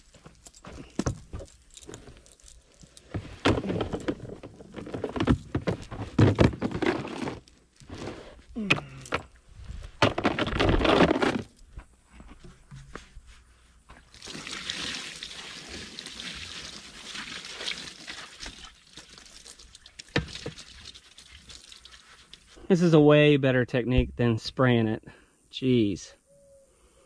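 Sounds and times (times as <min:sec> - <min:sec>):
heavy object handling noise: 0:00.0 - 0:13.3
liquid pouring into plastic can: 0:14.1 - 0:22.5.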